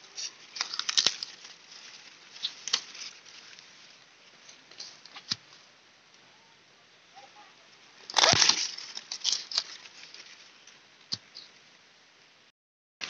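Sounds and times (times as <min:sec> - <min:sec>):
dry leaf crackles: 0:00.0 - 0:05.7, 0:07.3 - 0:11.5
leaves rustling against microphone: 0:00.0 - 0:11.9.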